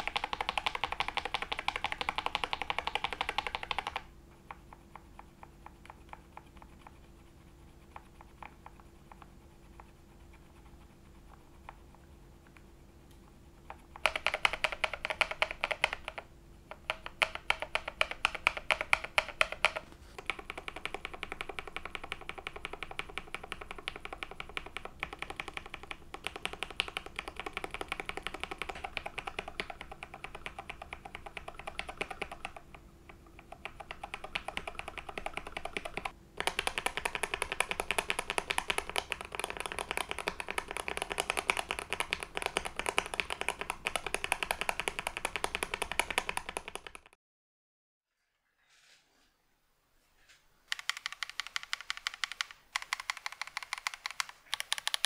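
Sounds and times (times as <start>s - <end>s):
typing on mechanical keyboard: 0.0s - 4.1s, 13.8s - 47.2s, 50.7s - 55.0s.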